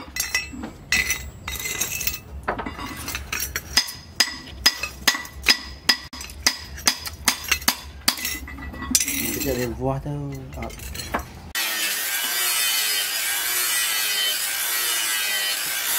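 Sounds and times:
hammer striking metal on anvil: 0:03.7 - 0:09.1.

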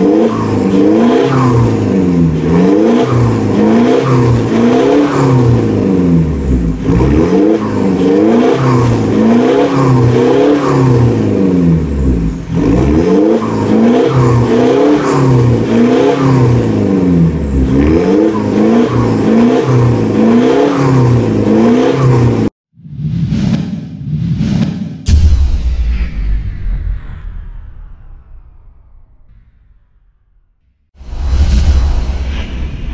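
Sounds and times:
car engine revving: 0:00.0 - 0:22.6
whoosh sound effect: 0:22.8 - 0:30.4, 0:31.0 - 0:32.9.

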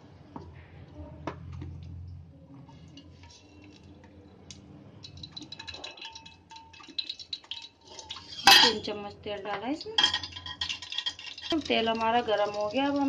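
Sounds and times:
oil trickling from a bottle: 0:05.0 - 0:08.8.

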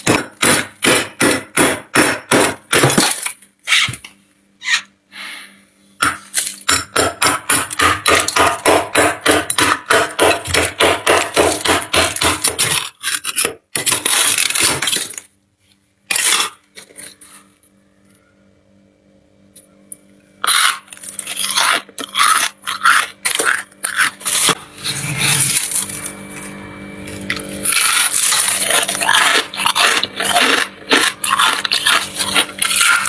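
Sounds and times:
metal spoon scraping frost: 0:12.6 - 0:14.7, 0:20.4 - 0:26.1, 0:27.6 - 0:33.0.

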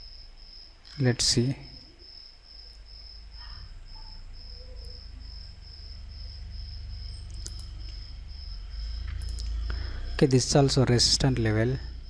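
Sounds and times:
low steady hum: 0:00.0 - 0:12.0
sharp clicks: 0:07.2 - 0:08.0, 0:09.0 - 0:09.6.

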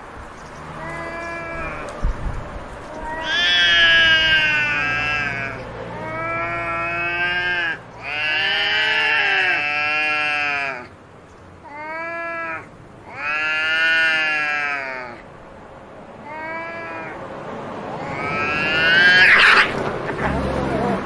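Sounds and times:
cats yowling: 0:00.7 - 0:02.0, 0:02.8 - 0:10.9, 0:11.6 - 0:15.2, 0:16.2 - 0:17.2, 0:18.0 - 0:19.9.

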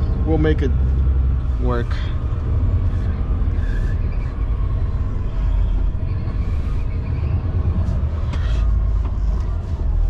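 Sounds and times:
diesel truck engine rumbling: 0:00.0 - 0:10.0.

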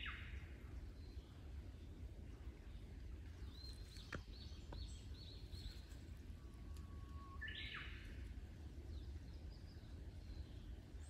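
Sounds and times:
low background rumble: 0:00.0 - 0:11.0
birds chirping and whistling: 0:06.8 - 0:08.2.

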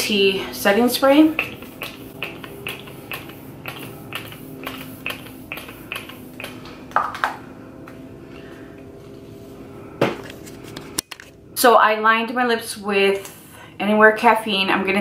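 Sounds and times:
spray bottle hissing sprays: 0:01.0 - 0:06.7.

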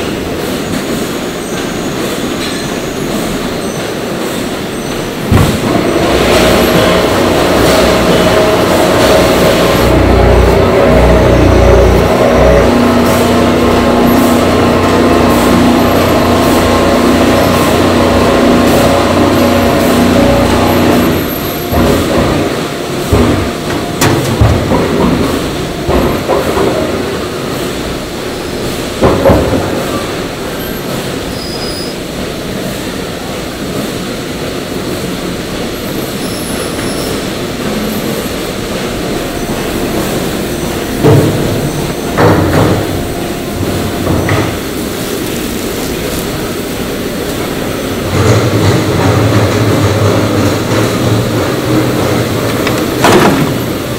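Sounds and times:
industrial mixer humming: 0:00.0 - 0:53.9
steel machinery thumps and clanks: 0:05.2 - 0:12.7, 0:20.0 - 0:27.1, 0:40.0 - 0:44.7, 0:48.0 - 0:53.9.

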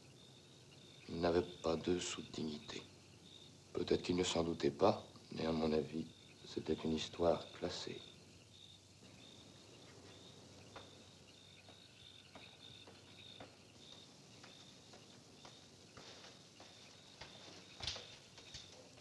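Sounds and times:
crickets chirping: 0:00.0 - 0:19.0
soft footsteps: 0:09.0 - 0:19.0.

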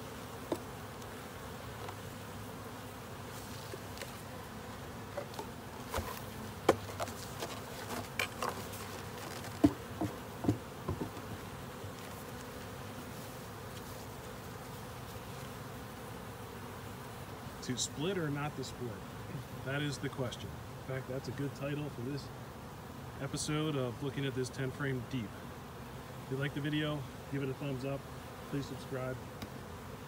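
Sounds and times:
bees humming: 0:00.0 - 0:30.0
wooden covers knocking and scraping: 0:05.1 - 0:11.4.

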